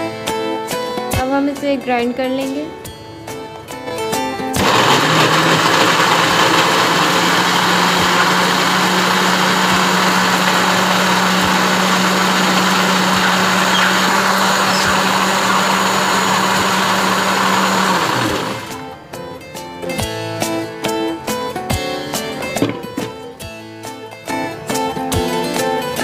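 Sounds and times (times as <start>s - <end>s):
blender motor grinding: 4.6s - 18.9s.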